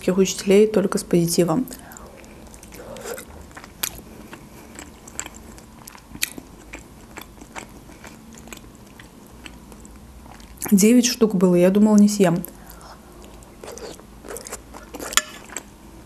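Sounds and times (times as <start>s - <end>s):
person chewing food: 1.7s - 10.7s, 12.6s - 15.7s.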